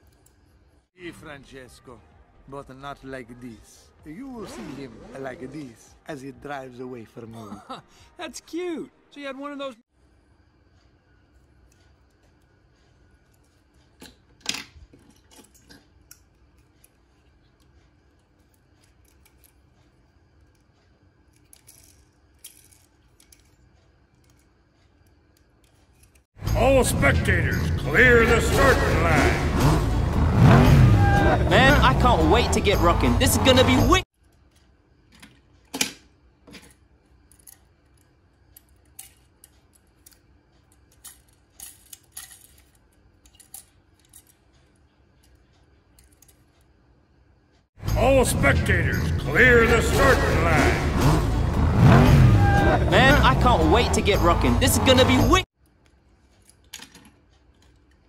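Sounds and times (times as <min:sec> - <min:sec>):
low room hum: 0:05.2 - 0:30.2, 0:30.9 - 0:51.6
toy cars clicking together: 0:18.4 - 0:19.7.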